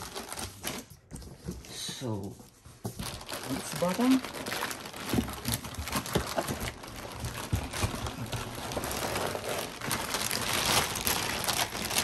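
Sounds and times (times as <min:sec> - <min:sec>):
plastic bag crinkling: 0:03.0 - 0:12.0.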